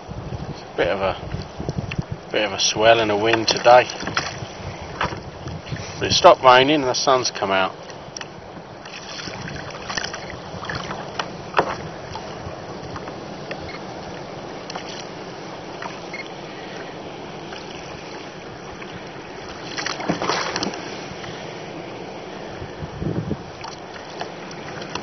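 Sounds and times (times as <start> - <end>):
water lapping against kayak hull: 0.0 - 25.0
wind and sea hiss: 0.0 - 25.0
sharp water slaps: 19.6 - 20.8.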